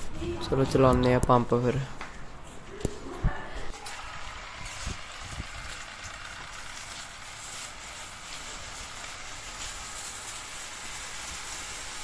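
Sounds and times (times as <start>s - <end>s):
washing pump running: 3.4s - 12.0s
water jet spraying tyre: 3.7s - 12.0s.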